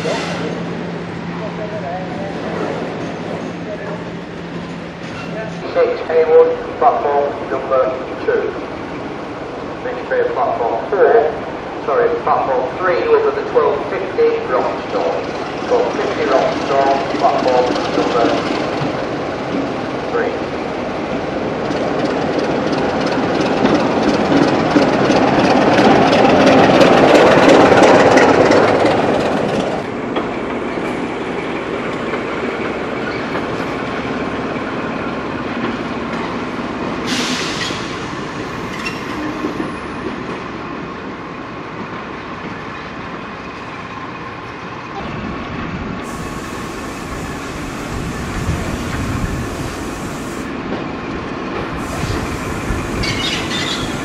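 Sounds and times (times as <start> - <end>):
diesel locomotive engine and wheels: 0.0 - 54.0
wheels clattering over rail joints: 21.6 - 30.8, 53.0 - 54.0
train wheel squeal: 37.1 - 40.0, 51.8 - 54.0.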